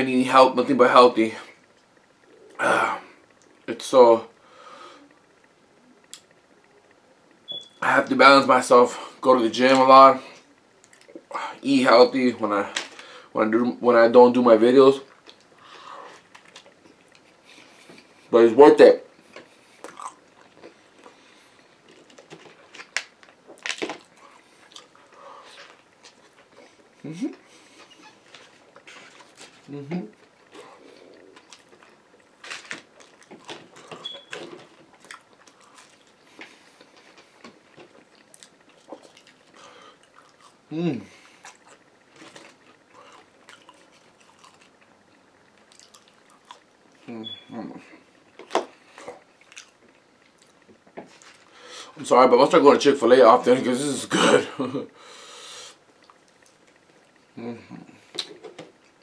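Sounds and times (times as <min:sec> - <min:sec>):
chewing mouth sounds: 0:19.3 - 0:21.2, 0:23.5 - 0:32.2, 0:32.8 - 0:47.1, 0:48.3 - 0:51.4.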